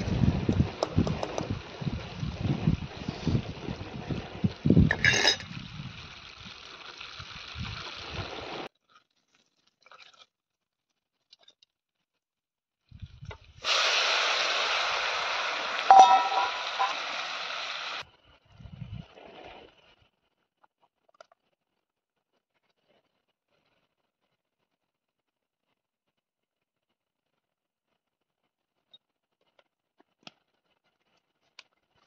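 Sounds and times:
prawns sizzling in butter: 1.5s - 9.8s, 13.6s - 18.0s
spoon clinking against pan: 15.9s - 17.0s.

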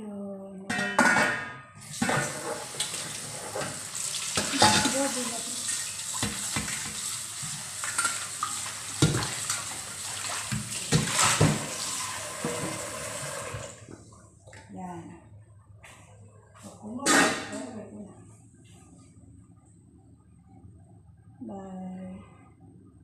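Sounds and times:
food sizzling in a frying pan: 1.9s - 13.6s.

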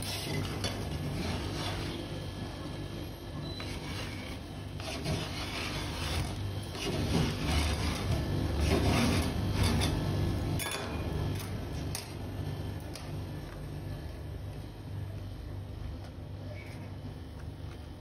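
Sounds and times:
metal spatula scraping cold pan: 0.0s - 2.1s, 3.5s - 10.1s.

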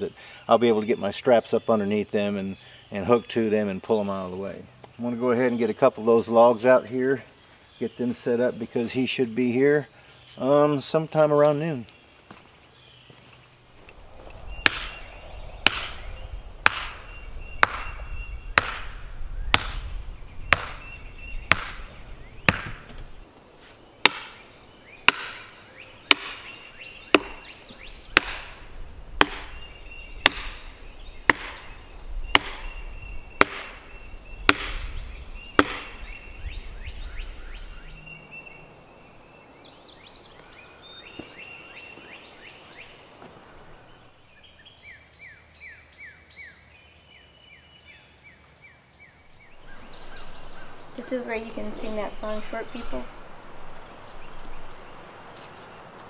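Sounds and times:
birds chirping faintly: 0.0s - 56.0s
axe chopping log: 14.6s - 15.0s, 15.6s - 16.0s, 16.6s - 18.0s, 18.6s - 20.9s, 21.5s - 21.9s, 22.5s - 23.0s, 24.0s - 24.4s, 25.1s - 26.5s, 27.1s - 27.5s, 28.2s - 30.7s, 31.3s - 32.8s, 33.4s - 33.8s, 34.5s - 34.9s, 35.6s - 36.0s.

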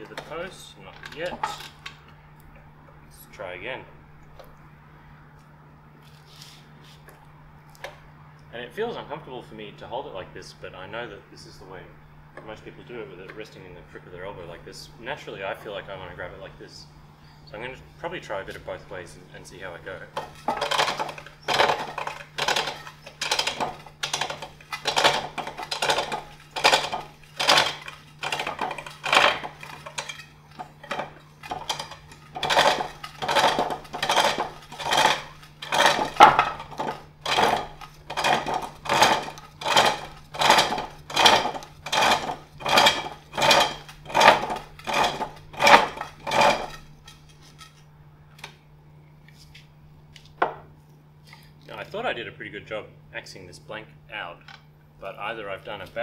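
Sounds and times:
lathe tool scraping wood: 19.4s - 47.8s.

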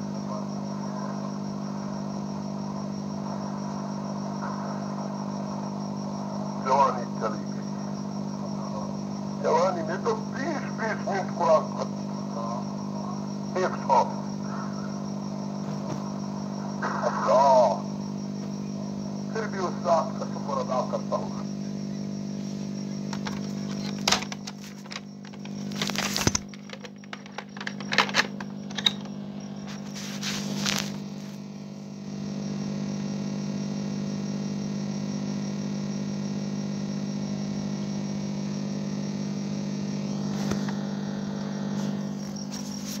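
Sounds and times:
steady electrical hum: 0.0s - 43.0s
sharp clicks and cracks: 23.1s - 29.1s.

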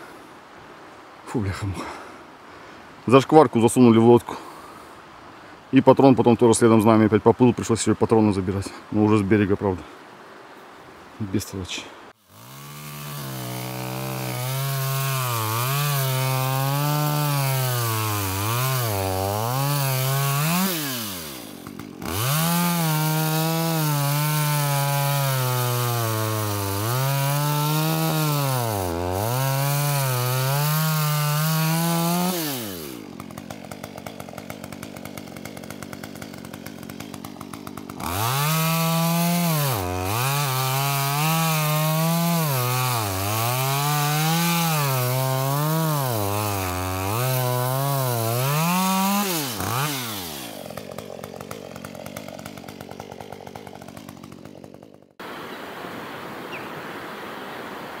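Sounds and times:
chainsaw cutting at high revs: 12.2s - 55.4s.

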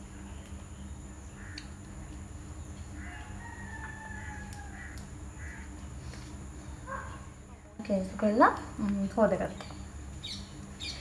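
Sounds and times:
steady low hum: 0.0s - 11.0s
rooster crowing: 2.9s - 5.6s.

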